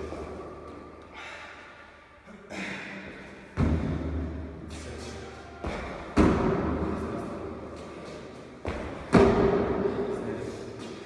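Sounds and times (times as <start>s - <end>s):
thuds of jumps on a box: 5.6s - 6.7s, 8.6s - 9.7s.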